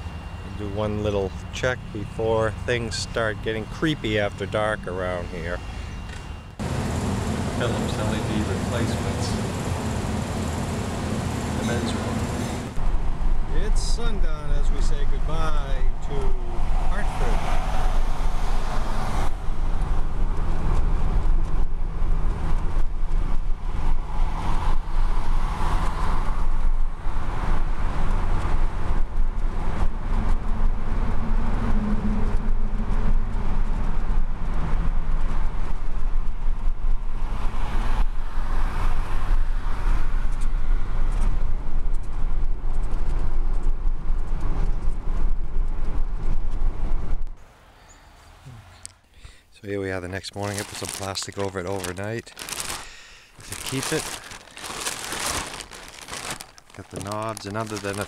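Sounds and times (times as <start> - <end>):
tyre and engine rumble: 0.0 - 47.4, 49.9 - 58.0
wind and road hiss: 0.0 - 49.1.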